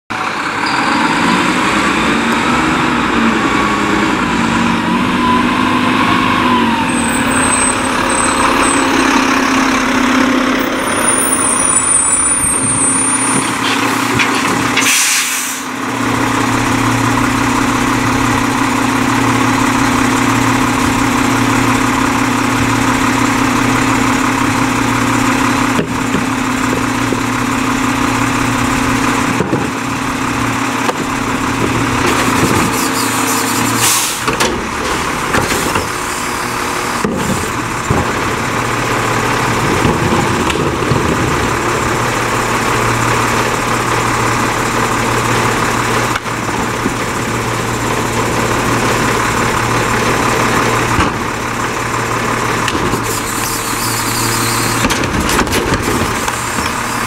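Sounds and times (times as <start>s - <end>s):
garbage truck diesel engine: 0.1s - 57.0s
loud burst of air hiss: 14.8s - 15.8s.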